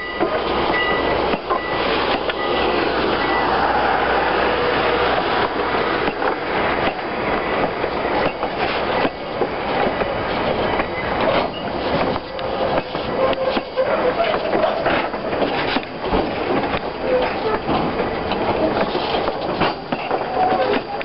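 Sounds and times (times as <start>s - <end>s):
steel wheels rumbling on rail: 0.0s - 21.0s
clicks over rail joints: 5.1s - 21.0s.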